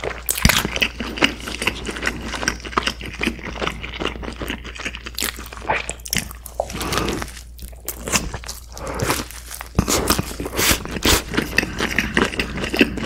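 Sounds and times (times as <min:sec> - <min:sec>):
crunchy chewing: 0:00.0 - 0:13.0.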